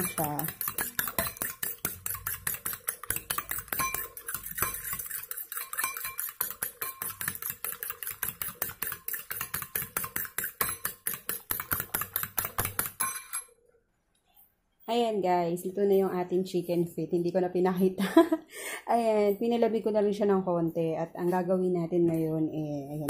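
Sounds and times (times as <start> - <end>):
fork clicking against ceramic bowl: 0.0 - 13.0.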